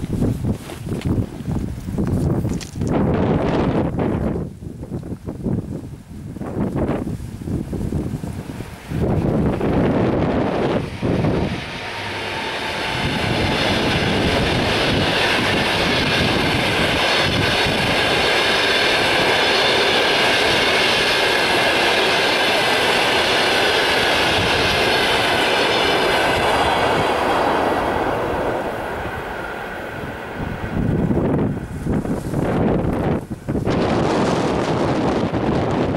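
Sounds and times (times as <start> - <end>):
train wheels clattering on rails: 8.9 - 35.9.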